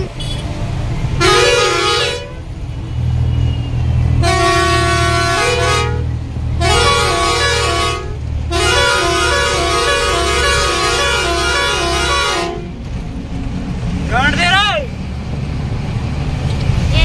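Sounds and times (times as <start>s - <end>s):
musical truck horn: 1.2s - 2.5s, 4.2s - 12.8s.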